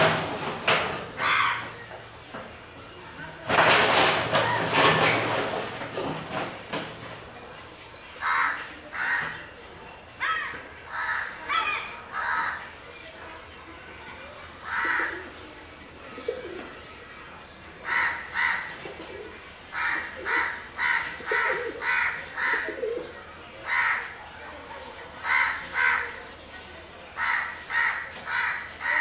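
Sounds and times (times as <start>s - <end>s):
crows cawing: 1.2s - 1.7s, 8.2s - 9.5s, 10.2s - 12.7s, 14.6s - 15.2s, 17.8s - 18.7s, 19.7s - 22.8s, 23.6s - 24.2s, 25.2s - 26.2s, 27.2s - 29.0s.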